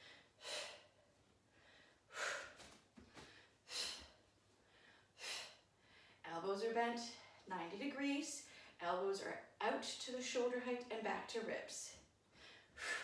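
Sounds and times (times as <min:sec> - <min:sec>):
woman breathing hard: 0:00.0 - 0:06.2, 0:12.3 - 0:13.0.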